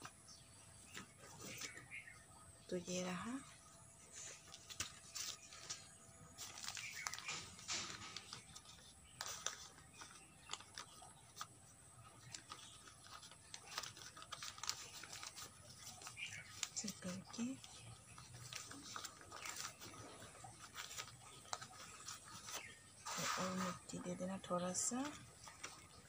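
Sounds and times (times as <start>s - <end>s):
soil crackling in plastic bag: 4.1s - 26.0s.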